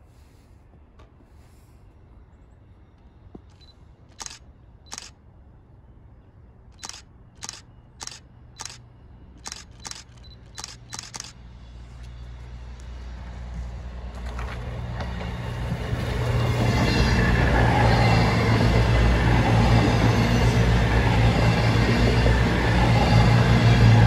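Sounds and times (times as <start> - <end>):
train rumble: 0.0 - 24.0
camera shutter clicking: 3.6 - 5.2, 6.8 - 8.8, 9.4 - 11.4.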